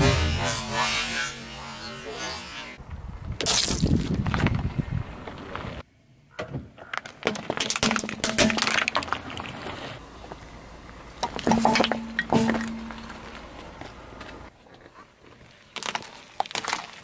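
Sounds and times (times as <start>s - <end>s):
plastic toy bricks cracking: 6.8s - 9.3s
metal tins crunching flat: 6.9s - 9.5s.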